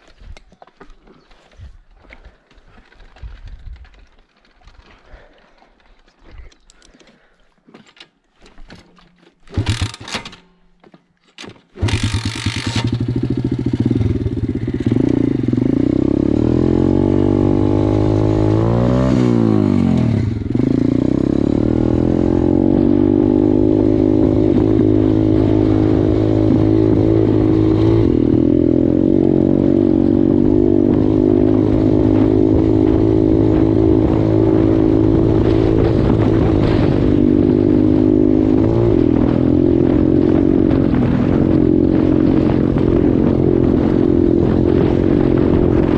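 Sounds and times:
sharp clanks: 7.6s - 13.0s
small motorcycle engine running: 9.5s - 10.4s, 11.8s - 45.9s.

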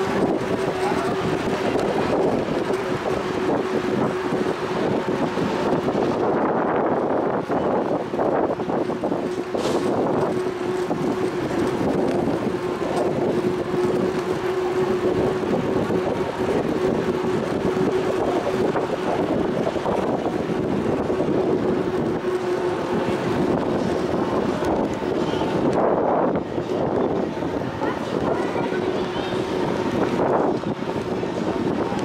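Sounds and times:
street traffic noise: 0.0s - 32.0s
wind rushing over microphone: 0.0s - 32.0s.

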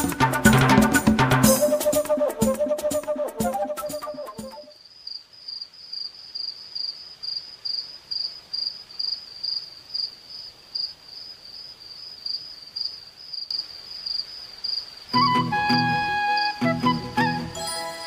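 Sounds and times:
cricket chirping: 4.6s - 16.6s
faint hiss: 4.7s - 18.0s.

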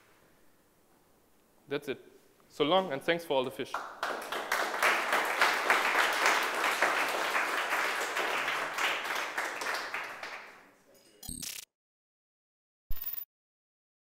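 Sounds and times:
audience applauding: 3.8s - 10.6s.

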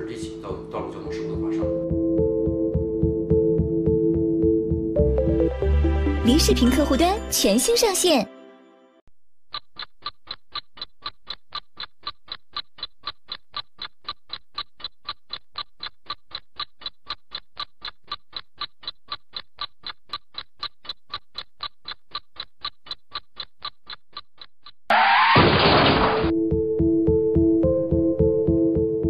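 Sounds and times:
clock-like ticking: 9.5s - 24.9s.

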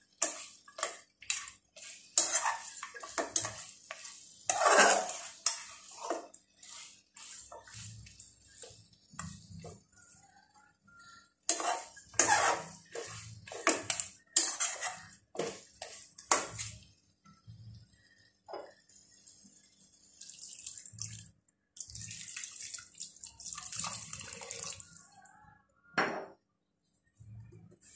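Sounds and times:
metal spatula scraping a pot: 0.0s - 16.9s.

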